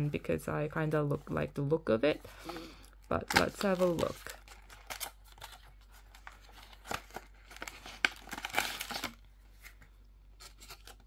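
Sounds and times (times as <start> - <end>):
cardboard and plastic rustling: 2.3 - 11.0.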